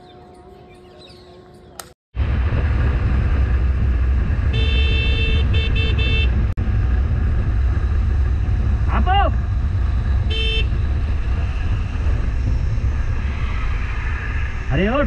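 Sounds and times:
wind and motorcycle road rumble: 0:00.0 - 0:15.0
vehicle horn honking: 0:04.5 - 0:06.4, 0:10.3 - 0:10.8.

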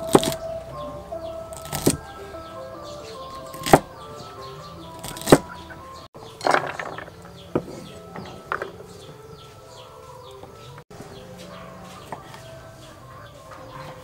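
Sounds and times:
chickens calling: 0:00.0 - 0:14.0
small birds chirping: 0:00.0 - 0:14.0
cleaver chopping on wooden board: 0:00.1 - 0:00.4, 0:01.5 - 0:02.0, 0:03.5 - 0:03.9, 0:05.0 - 0:05.5.

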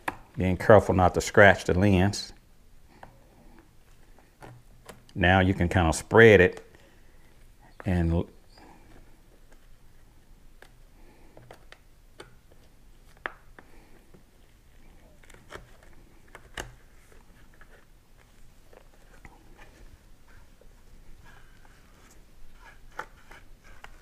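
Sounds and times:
plastic face shield clicks and rubs: 0:10.5 - 0:14.3, 0:14.9 - 0:24.0.

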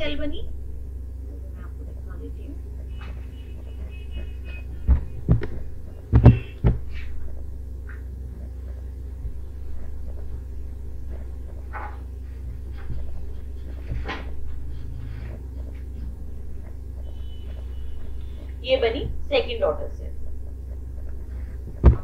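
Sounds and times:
low hum: 0:00.0 - 0:22.0
dull thumps: 0:02.8 - 0:19.4, 0:20.2 - 0:22.0
soft knocks and rustles: 0:11.1 - 0:16.8, 0:21.0 - 0:22.0.

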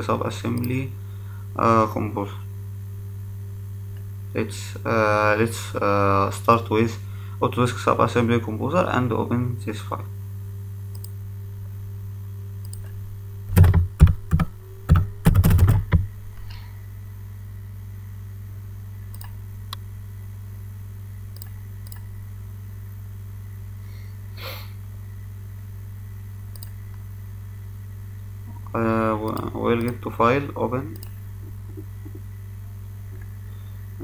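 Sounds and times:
low electrical hum: 0:00.0 - 0:34.0
computer keyboard typing: 0:13.5 - 0:16.0.

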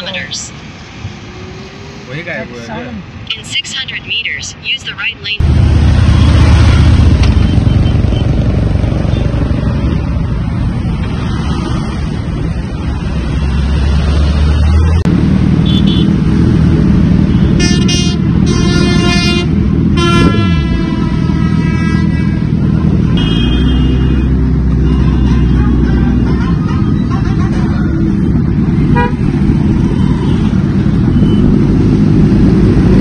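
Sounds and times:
motorcycle engines running: 0:05.4 - 0:33.0
vehicle horn blasts: 0:17.6 - 0:22.0, 0:23.1 - 0:27.8, 0:28.9 - 0:29.2.

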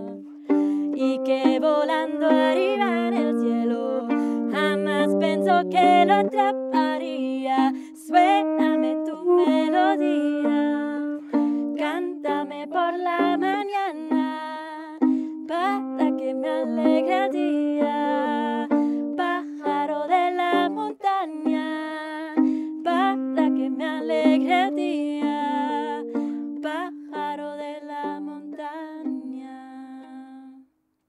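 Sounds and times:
saxophone melody: 0:00.0 - 0:30.6
strummed string instrument: 0:00.0 - 0:30.7.

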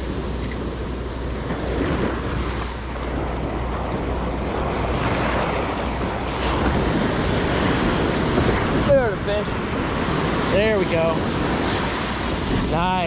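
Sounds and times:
surf washing up on beach: 0:00.0 - 0:13.0
wind rumbling on microphone: 0:00.0 - 0:13.0.

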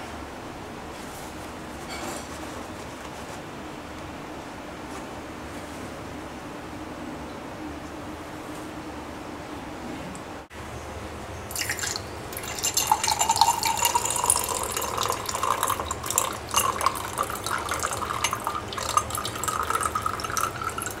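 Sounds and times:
water pouring into a glass: 0:11.5 - 0:21.0.

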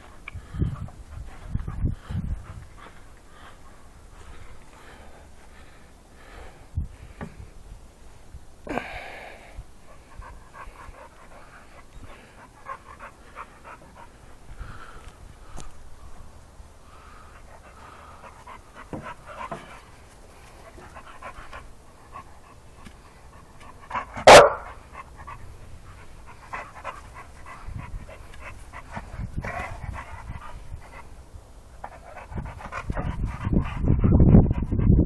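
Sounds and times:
dog panting: 0:00.0 - 0:06.4, 0:09.8 - 0:15.2, 0:16.8 - 0:35.0
dog barking sharply: 0:24.2 - 0:24.8.

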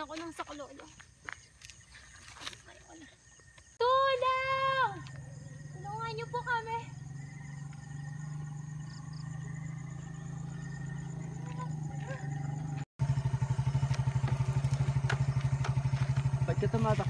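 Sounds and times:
motorcycle engine running: 0:03.9 - 0:17.0.

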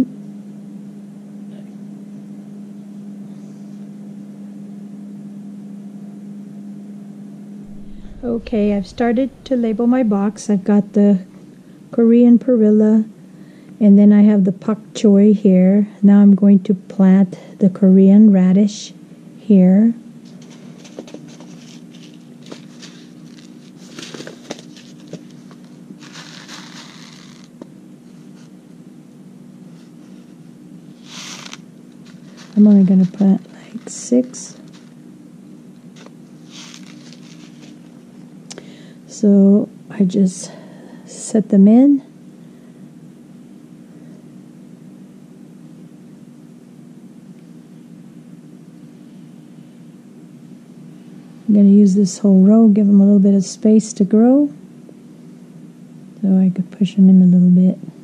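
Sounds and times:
steady low hum: 0:00.0 - 0:58.0
paper packet crinkling: 0:20.3 - 0:27.5, 0:31.0 - 0:35.0, 0:36.0 - 0:38.0
background hiss: 0:21.5 - 0:28.6, 0:35.9 - 0:39.4.

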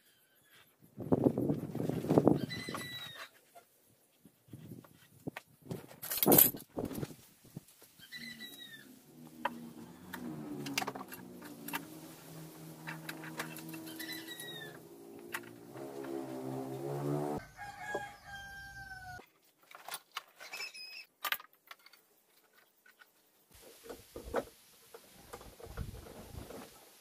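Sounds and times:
gliding falling bird calls: 0:07.9 - 0:17.4
rooster crowing: 0:16.4 - 0:19.2.

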